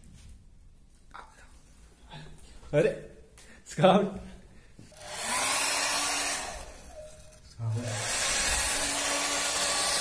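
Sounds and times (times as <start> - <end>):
hair dryer blowing air: 4.9 - 10.0.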